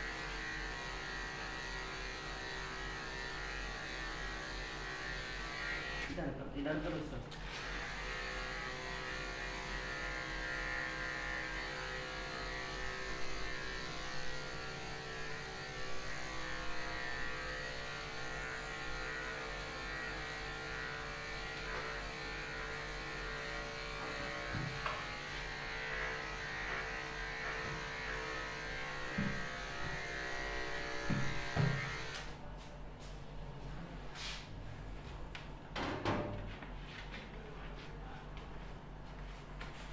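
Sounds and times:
electric hair clipper buzzing: 0.0s - 6.2s, 7.4s - 32.4s.

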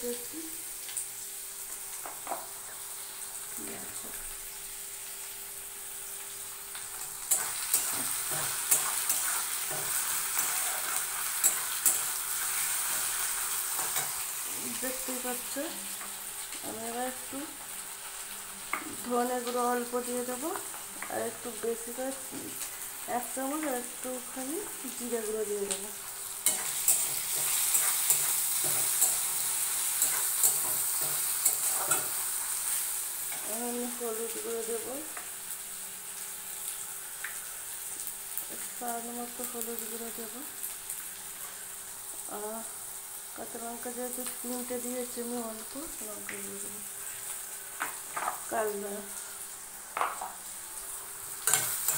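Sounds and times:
vegetables sizzling in oil: 0.0s - 51.9s
spatula scraping and clinking on pan: 26.4s - 32.2s, 51.4s - 51.9s.

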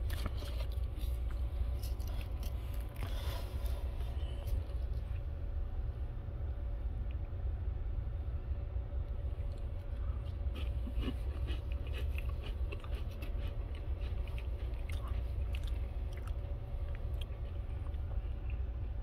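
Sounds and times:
chewing and crunching cracker: 0.0s - 5.3s, 9.4s - 19.0s
steady low hum: 0.0s - 19.0s.

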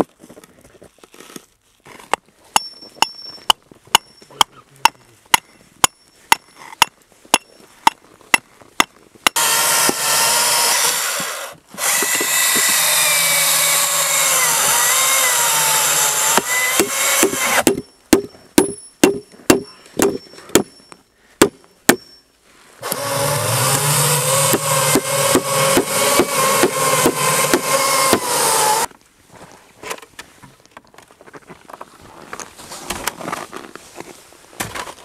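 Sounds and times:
sharp blows on wood: 5.3s - 20.8s, 22.8s - 28.9s
power drill running: 9.4s - 17.6s, 22.8s - 28.9s.

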